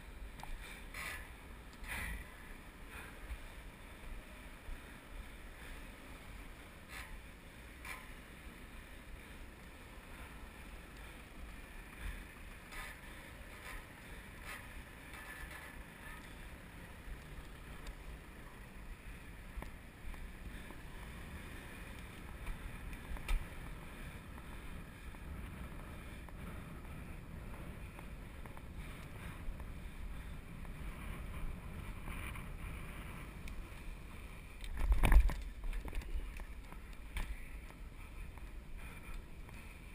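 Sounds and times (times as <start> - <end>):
wind on microphone: 20.2 - 39.9.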